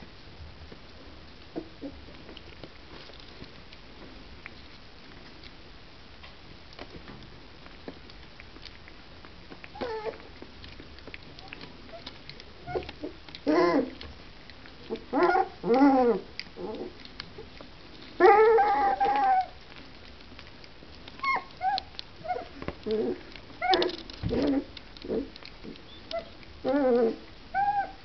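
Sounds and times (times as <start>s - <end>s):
puppies crying: 9.8s - 10.2s, 11.9s - 14.0s, 18.2s - 19.6s, 21.1s - 25.3s, 25.9s - 28.0s
puppies yelping: 9.8s - 10.2s, 11.4s - 14.0s, 14.9s - 17.0s, 18.2s - 19.6s, 21.1s - 28.0s.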